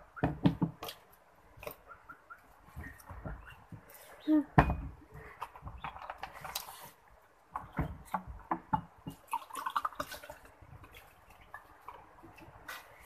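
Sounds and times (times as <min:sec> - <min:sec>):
water pouring into glass: 0:09.2 - 0:10.4.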